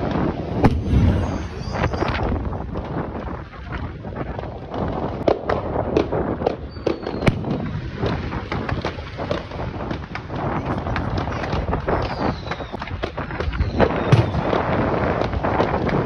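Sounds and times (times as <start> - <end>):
low rumble: 0.6 - 3.1.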